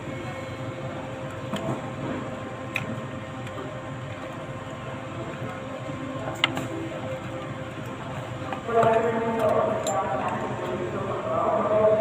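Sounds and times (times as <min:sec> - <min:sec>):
hall background hum: 0:00.0 - 0:12.0.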